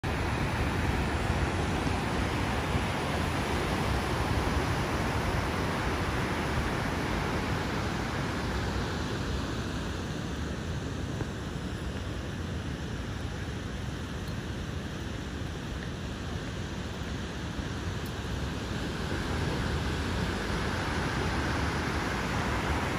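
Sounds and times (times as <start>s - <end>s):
ocean surf breaking: 0.0s - 11.1s, 17.8s - 22.9s.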